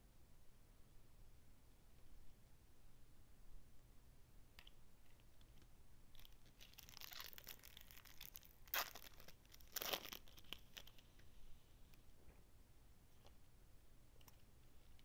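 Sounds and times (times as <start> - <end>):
foil wrapper crinkling: 6.2 - 11.0
foil wrapper ripping: 6.2 - 11.0.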